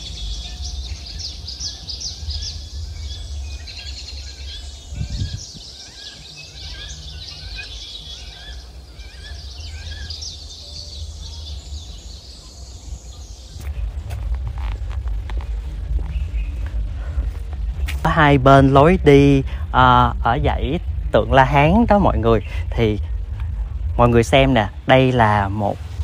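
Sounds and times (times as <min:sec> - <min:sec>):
birds chirping and twittering: 0:00.0 - 0:26.0
low rumble: 0:00.0 - 0:26.0
rustling: 0:13.6 - 0:18.1.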